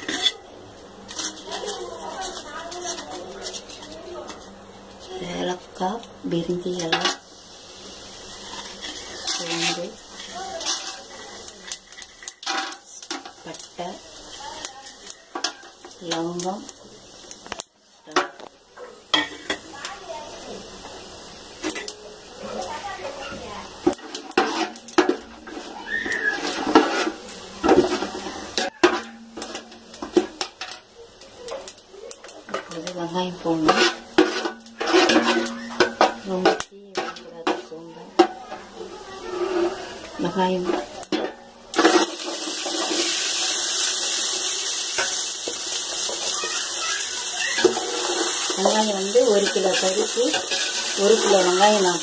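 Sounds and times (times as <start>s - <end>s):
metal spatula scraping a pot: 0.0s - 0.4s, 1.1s - 4.5s, 8.3s - 13.6s, 23.9s - 30.7s, 32.5s - 46.4s, 47.3s - 52.0s
onions sizzling in hot oil: 0.0s - 52.0s.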